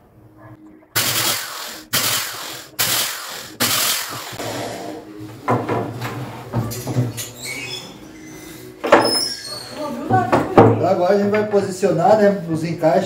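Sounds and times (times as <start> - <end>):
electric drill boring through wood: 1.0 - 5.0.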